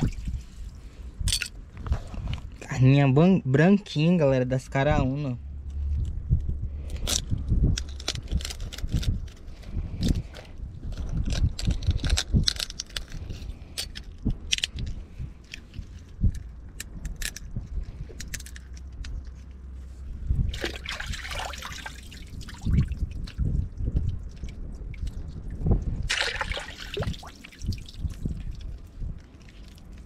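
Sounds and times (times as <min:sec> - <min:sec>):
water splashing and trickling: 0:00.0 - 0:01.0, 0:20.4 - 0:30.0.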